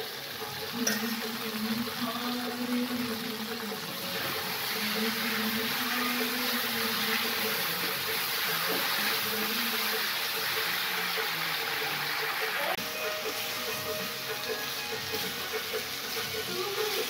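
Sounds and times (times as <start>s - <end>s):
curry sizzling and bubbling: 0.0s - 17.0s.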